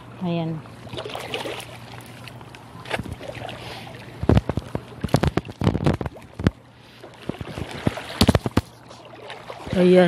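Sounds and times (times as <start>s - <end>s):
water lapping against rocks: 0.9s - 10.0s
rumbling knocks on phone microphone: 7.3s - 8.7s.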